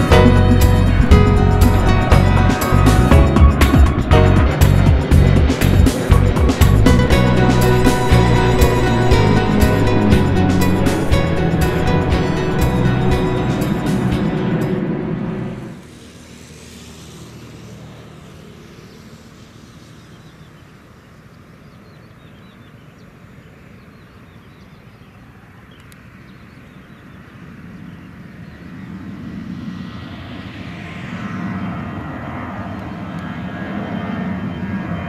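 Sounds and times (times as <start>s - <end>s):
low rumble: 0.0s - 15.8s, 28.9s - 35.0s
high jet whine: 0.0s - 21.6s, 27.3s - 35.0s
jet airliner flying overhead: 0.0s - 24.3s, 24.9s - 35.0s.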